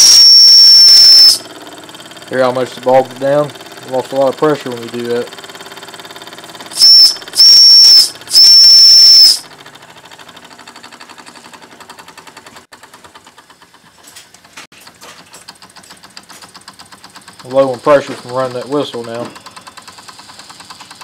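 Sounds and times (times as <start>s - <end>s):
steam whistle blasts: 0.0s - 1.4s, 6.8s - 9.4s
steam engine chuffing: 1.3s - 21.0s.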